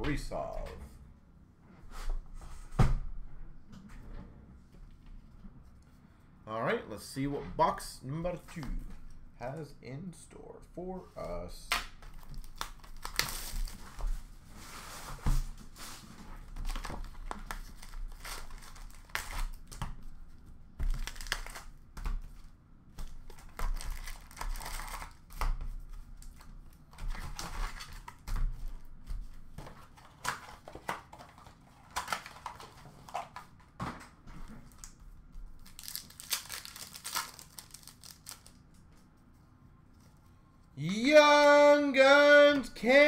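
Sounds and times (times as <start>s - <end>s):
card pack wrappers tearing: 12.4s - 13.8s, 16.7s - 19.8s, 20.9s - 21.8s, 23.3s - 25.4s, 35.6s - 38.7s.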